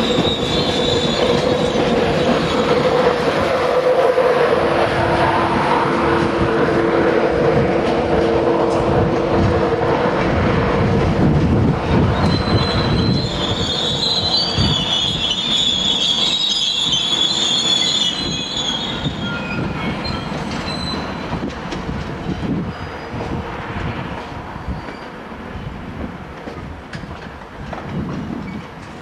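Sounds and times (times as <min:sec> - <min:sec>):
wheel-flange squeal: 0:00.0 - 0:03.1, 0:12.0 - 0:21.4, 0:22.3 - 0:23.2, 0:24.6 - 0:25.7
train wheels rumbling on rails: 0:00.0 - 0:29.0.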